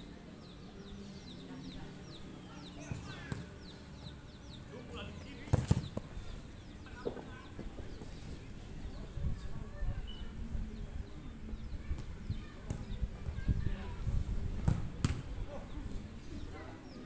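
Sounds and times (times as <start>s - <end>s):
ball kicked: 5.5s - 6.1s, 14.6s - 15.3s
faint bird chirps: 9.9s - 10.4s.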